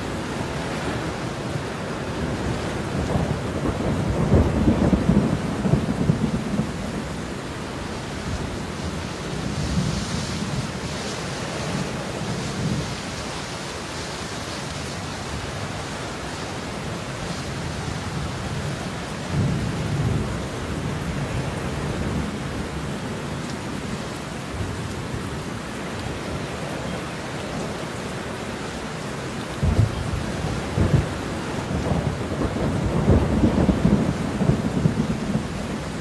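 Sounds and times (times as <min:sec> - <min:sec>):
heavy rain: 0:00.0 - 0:36.0
thunder rumbling: 0:02.0 - 0:13.1, 0:29.5 - 0:36.0.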